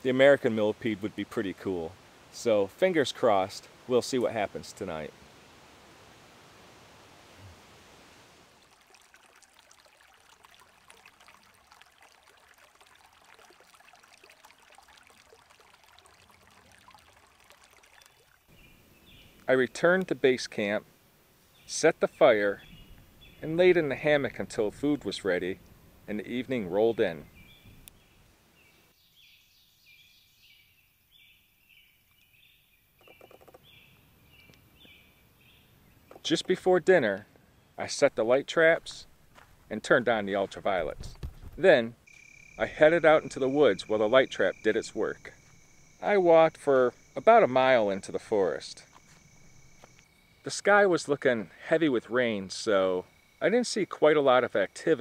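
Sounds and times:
creek trickling over stones: 0:00.0 - 0:28.3, 0:37.8 - 0:55.0
faint steady hiss: 0:00.0 - 0:55.0
insects chirping: 0:42.0 - 0:51.6, 0:52.3 - 0:55.0.

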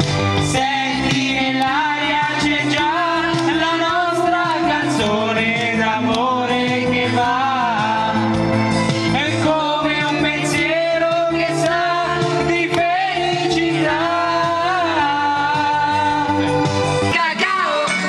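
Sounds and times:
accompanying music with bass line: 0:00.0 - 0:18.0
man singing into microphone: 0:00.4 - 0:08.4, 0:09.1 - 0:18.0
woman singing into microphone: 0:17.1 - 0:18.0.

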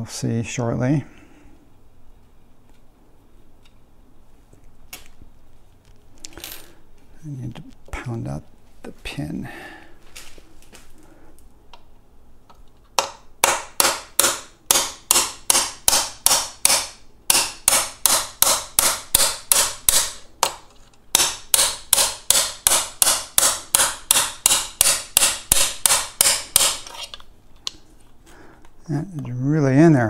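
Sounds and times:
hammer striking metal pin: 0:13.0 - 0:26.9.

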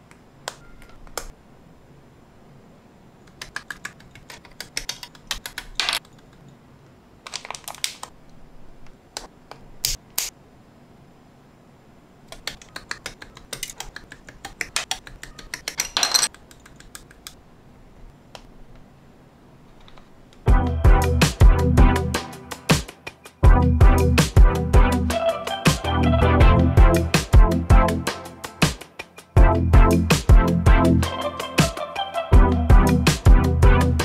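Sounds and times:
plastic parts clicking together: 0:07.2 - 0:08.2.

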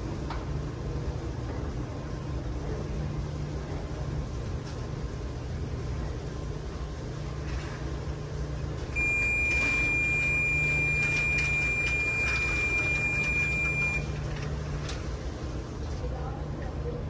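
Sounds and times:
low steady hum: 0:00.0 - 0:17.0
long high beep: 0:09.0 - 0:14.1.

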